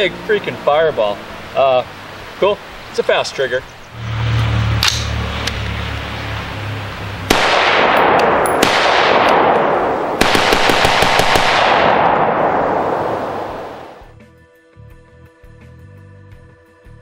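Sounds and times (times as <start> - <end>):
rifle shots in rapid strings: 7.3 - 13.0.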